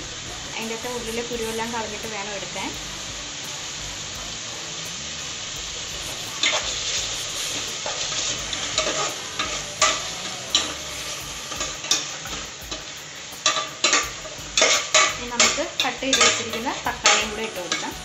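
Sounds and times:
masala sizzling in a pot: 0:00.0 - 0:18.0
metal spoon scraping a pot: 0:06.1 - 0:17.9.

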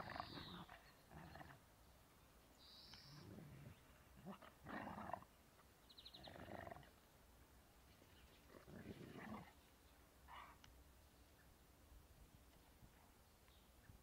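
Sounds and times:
dogs play-growling: 0:08.5 - 0:09.5.

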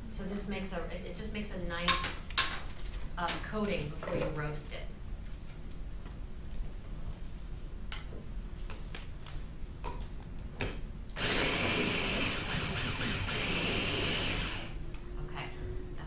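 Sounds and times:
food chopper motor running: 0:11.2 - 0:14.8.

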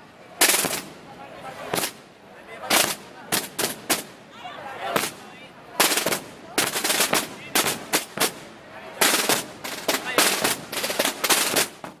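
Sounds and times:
procession drums beating: 0:05.8 - 0:08.4.

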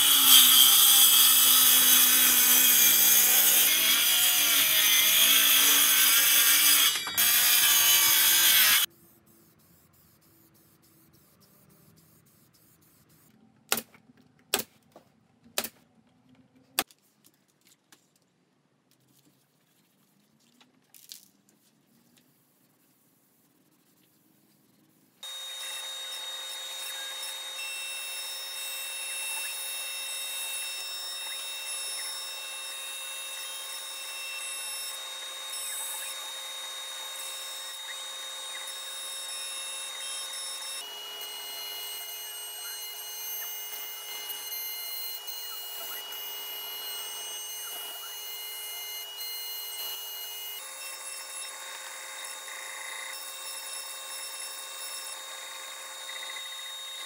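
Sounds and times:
router spindle whining: 0:00.0 - 0:08.9, 0:25.2 - 0:57.0.

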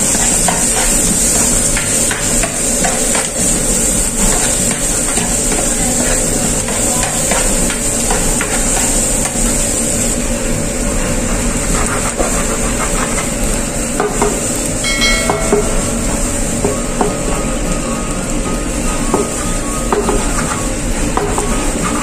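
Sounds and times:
onion sizzling in a frying pan: 0:00.0 - 0:22.0
brief ringing tone: 0:14.8 - 0:15.8.

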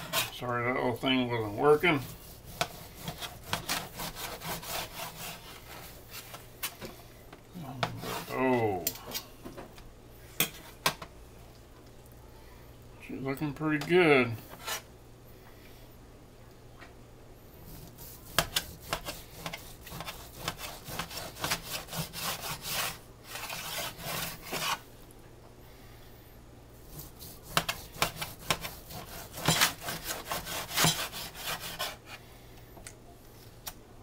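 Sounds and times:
knife scraping cutting board: 0:00.0 - 0:06.9, 0:07.8 - 0:09.2, 0:14.5 - 0:14.9, 0:17.7 - 0:24.8, 0:26.9 - 0:32.2
knife sawing through meat: 0:01.6 - 0:05.6, 0:17.8 - 0:24.8, 0:26.9 - 0:32.1.

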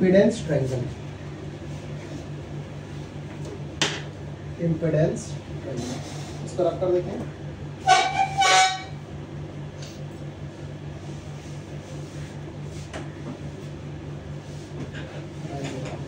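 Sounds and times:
steady low hum: 0:00.0 - 0:16.0
vehicle horn honking: 0:07.8 - 0:09.0.

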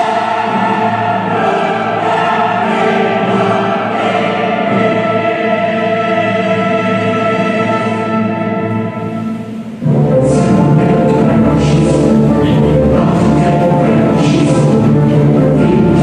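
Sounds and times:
choir singing held chords: 0:00.0 - 0:16.0
orchestral backing: 0:00.0 - 0:16.0.

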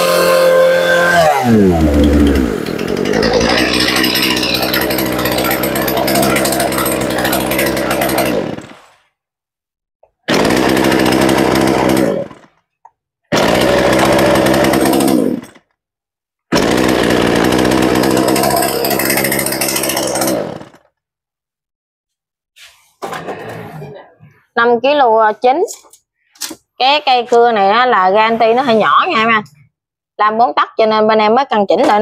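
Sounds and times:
chainsaw idling: 0:00.0 - 0:09.0, 0:10.3 - 0:12.6, 0:13.3 - 0:15.6, 0:16.6 - 0:20.9
chainsaw starting and running: 0:00.0 - 0:09.0, 0:10.3 - 0:12.6, 0:13.3 - 0:15.7, 0:16.5 - 0:20.9.

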